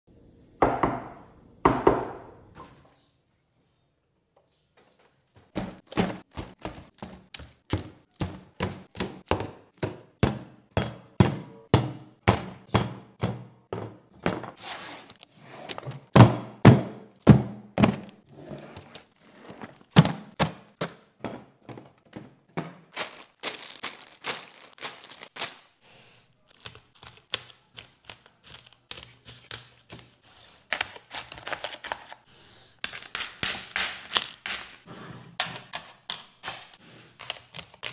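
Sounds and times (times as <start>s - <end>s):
plastic shrink-wrap crackling: 22.9s - 25.8s
scissors cutting plastic: 26.4s - 37.9s.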